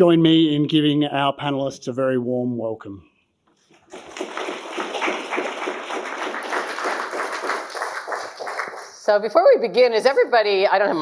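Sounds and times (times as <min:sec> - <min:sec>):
audience applauding: 0:03.7 - 0:09.1.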